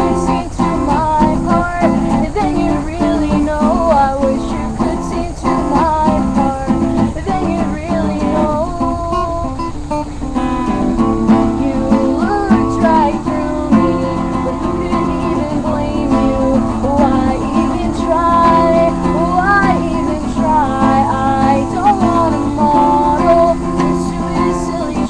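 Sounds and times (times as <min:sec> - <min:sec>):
woman singing: 0:00.0 - 0:10.0, 0:10.7 - 0:25.0
acoustic guitar strumming: 0:00.0 - 0:25.0.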